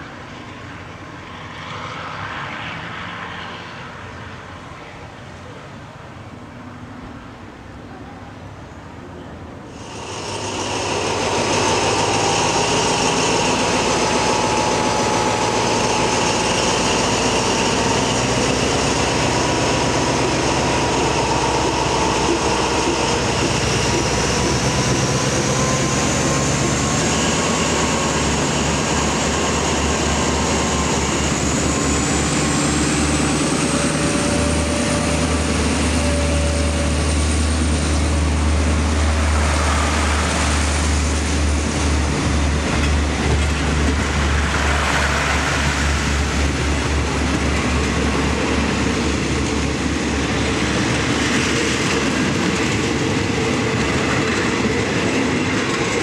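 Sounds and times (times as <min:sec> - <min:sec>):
diesel locomotive running: 0:09.2 - 0:56.0
high whine rising in pitch: 0:09.8 - 0:41.2.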